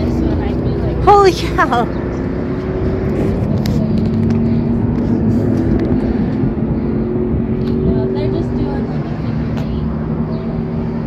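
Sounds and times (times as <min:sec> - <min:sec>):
low engine rumble: 0:00.0 - 0:11.0.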